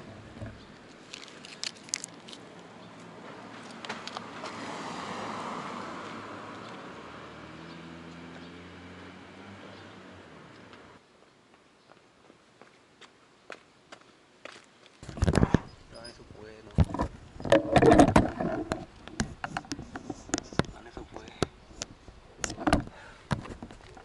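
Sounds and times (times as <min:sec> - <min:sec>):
car passing: 0:02.7 - 0:11.0.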